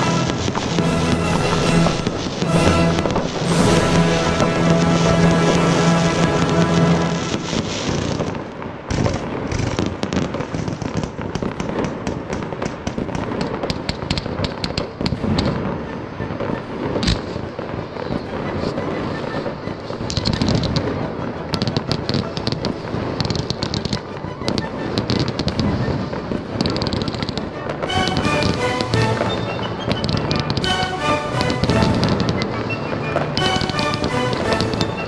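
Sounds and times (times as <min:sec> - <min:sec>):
music: 0:00.0 - 0:08.2, 0:15.6 - 0:17.0, 0:17.9 - 0:35.0
fireworks crackling and popping: 0:00.0 - 0:35.0.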